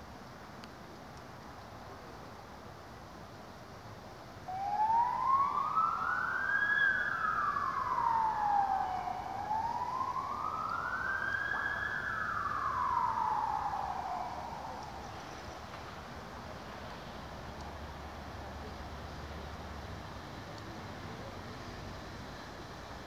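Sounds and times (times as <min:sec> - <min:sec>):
wailing siren: 0:04.5 - 0:15.4.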